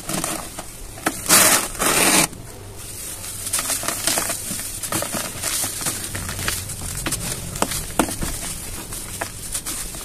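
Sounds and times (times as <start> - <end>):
soft powder crackling: 0.0 - 10.0
gritty cement crumbling: 3.5 - 10.0.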